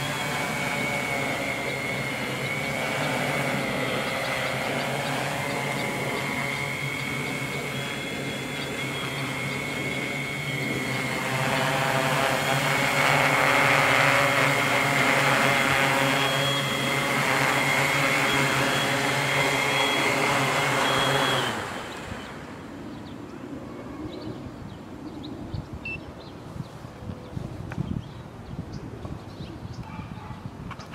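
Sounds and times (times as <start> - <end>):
drone motors humming: 0.0 - 23.7.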